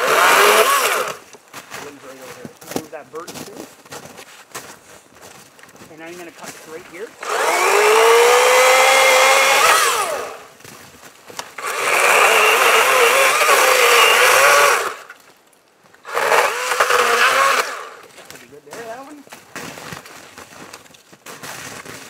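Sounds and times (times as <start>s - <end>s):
electric chainsaw cutting wood: 0.0s - 1.3s, 6.0s - 10.5s, 11.4s - 15.2s, 16.0s - 18.2s.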